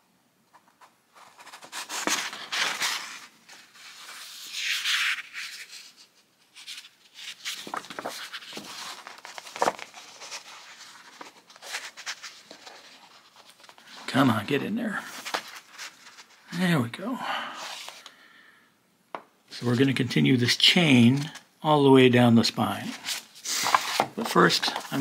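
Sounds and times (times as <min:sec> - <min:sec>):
paper cover rustling: 0:00.6 - 0:16.5, 0:20.9 - 0:21.4, 0:22.9 - 0:25.0.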